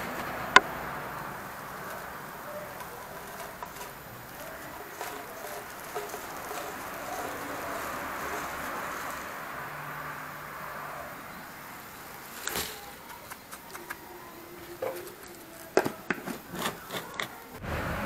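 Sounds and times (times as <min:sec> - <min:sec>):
granules pouring into pipe: 0:00.0 - 0:09.9
plastic bag rustling: 0:00.0 - 0:10.6, 0:11.7 - 0:13.3, 0:14.0 - 0:17.6.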